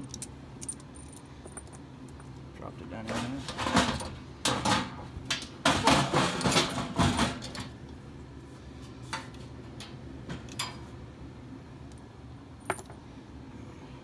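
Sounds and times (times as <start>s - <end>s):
metal clinks: 0.0s - 2.3s, 12.6s - 13.0s
metal clattering in blower housing: 1.5s - 7.9s.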